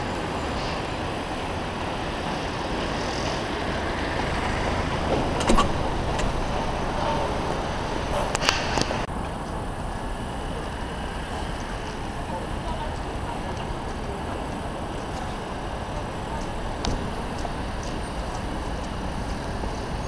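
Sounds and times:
city traffic noise: 0.0 - 20.0
clicks: 5.0 - 9.1.

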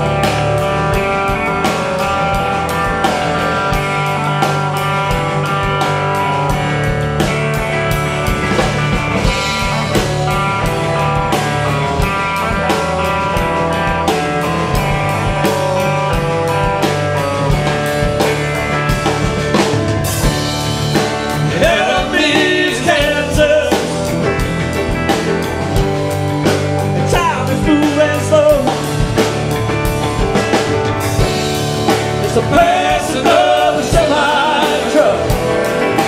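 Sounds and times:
bass guitar: 0.0 - 36.0
drum kit steady beat: 0.0 - 36.0
electric guitar chords: 0.0 - 36.0
piano: 0.0 - 36.0.

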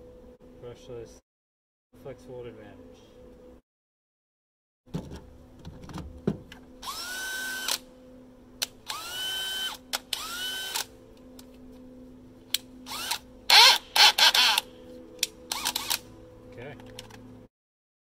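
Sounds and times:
drill motor whining: 6.8 - 7.8, 8.9 - 10.9, 12.9 - 14.7, 15.5 - 16.0
sharp clicks: 15.2 - 16.0.

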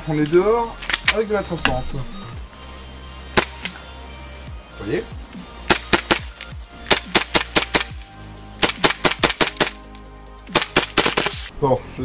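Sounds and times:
airsoft pistol shots: 3.4 - 3.7, 5.7 - 8.0, 8.6 - 9.8, 10.5 - 11.4.

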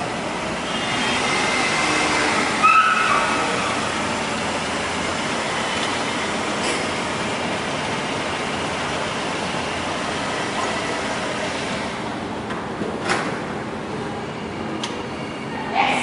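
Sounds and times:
car engine running: 0.0 - 12.8
short squeal: 0.7 - 3.6.

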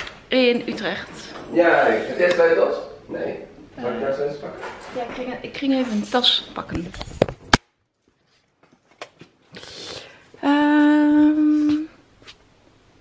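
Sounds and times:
woman humming: 10.4 - 12.0.

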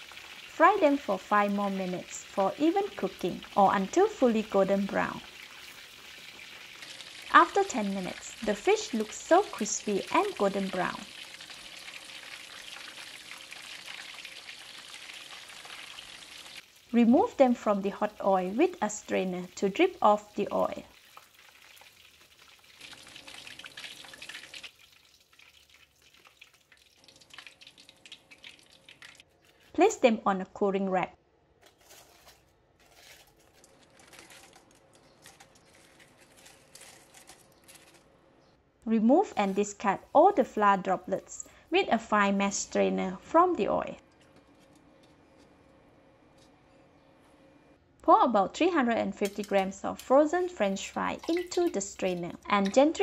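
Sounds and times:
fish deep-frying in oil: 0.0 - 29.2, 49.2 - 53.0.

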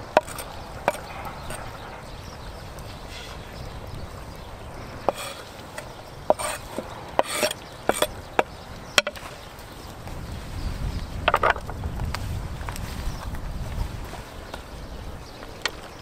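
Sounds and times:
knife scraping on cutting board: 5.1 - 8.1.

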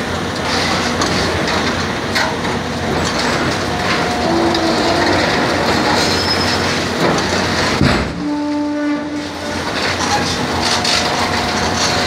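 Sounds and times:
excavator running: 0.0 - 12.0
brief mechanical squeal: 6.0 - 6.6.

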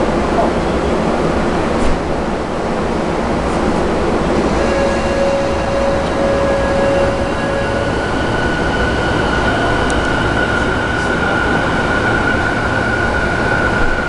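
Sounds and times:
train running rumble: 0.0 - 14.0
train traction motors whining: 3.0 - 14.0.

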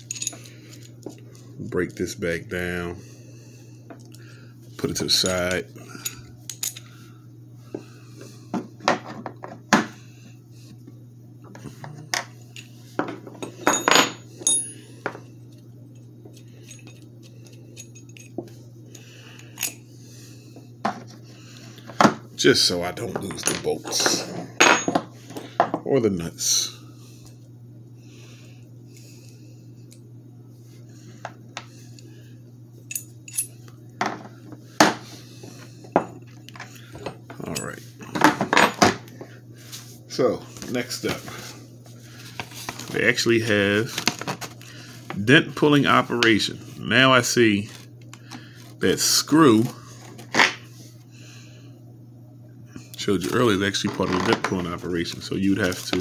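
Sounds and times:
metal parts clinking together: 0.0 - 0.9, 13.4 - 14.8, 32.9 - 33.5
steady low hum: 0.0 - 56.0.

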